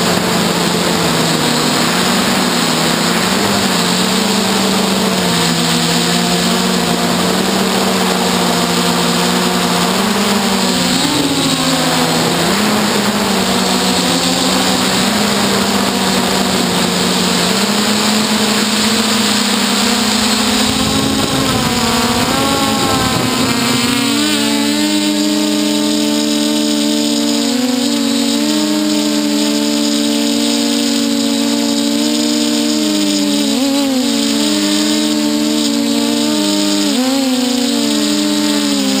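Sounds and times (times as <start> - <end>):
drone motors whining: 0.0 - 39.0
low rushing noise: 0.2 - 25.6.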